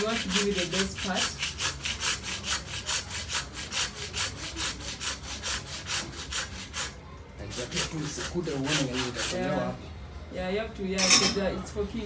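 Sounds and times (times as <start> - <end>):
blade sawing through meat: 0.0 - 9.6.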